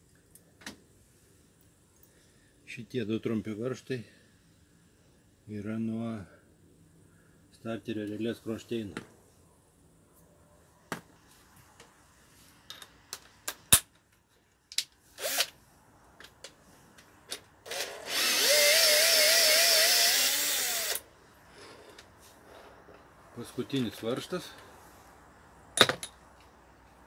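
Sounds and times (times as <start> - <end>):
cordless drill spinning: 15.2 - 15.6, 17.6 - 21.0.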